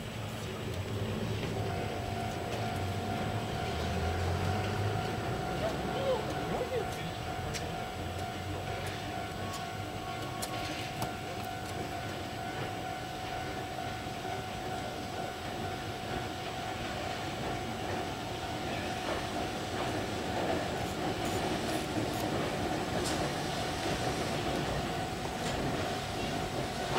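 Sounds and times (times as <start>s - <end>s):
train wheels rumbling on rails: 0.0s - 26.9s.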